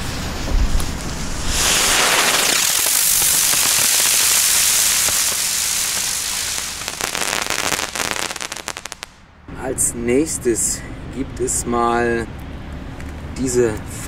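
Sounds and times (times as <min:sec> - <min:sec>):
rapid firework crackle: 0:00.0 - 0:09.2
firework rushing hiss: 0:00.0 - 0:09.3.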